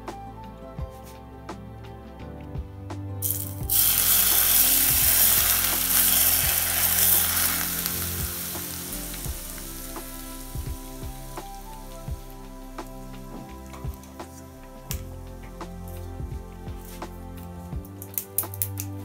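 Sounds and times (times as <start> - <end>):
hot oil sizzling on meat: 3.2 - 13.0.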